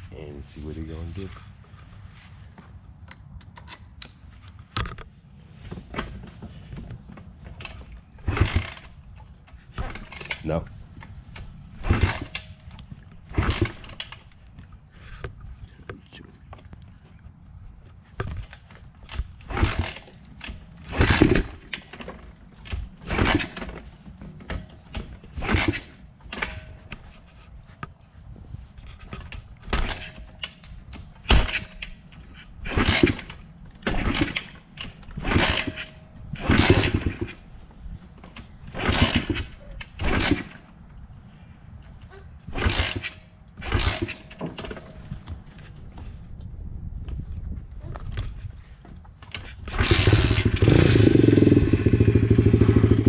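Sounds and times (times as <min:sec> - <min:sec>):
motorbike engine kick starting: 0:07.6 - 0:09.0, 0:11.8 - 0:12.6, 0:13.3 - 0:14.2, 0:19.4 - 0:26.7, 0:32.6 - 0:37.4, 0:38.7 - 0:40.6, 0:42.5 - 0:45.0, 0:49.4 - 0:53.0.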